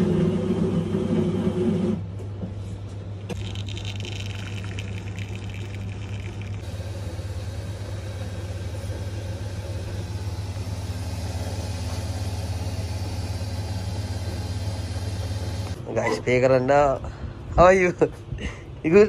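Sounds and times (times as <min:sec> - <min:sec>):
coffee machine humming: 0:03.2 - 0:15.8
coffee pouring: 0:03.3 - 0:06.8.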